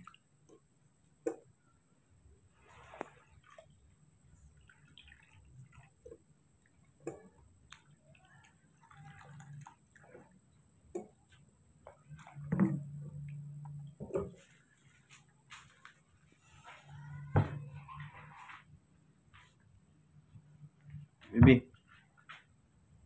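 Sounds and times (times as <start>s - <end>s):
water dripping: 0.0s - 1.6s, 2.8s - 15.3s
hand swishing water in basin: 2.5s - 10.3s.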